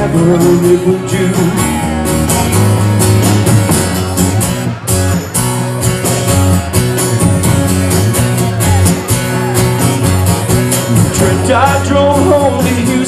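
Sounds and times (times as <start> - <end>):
electric bass: 0.0 - 13.0
strummed guitar: 0.0 - 13.0
steady drum beat: 2.0 - 13.0.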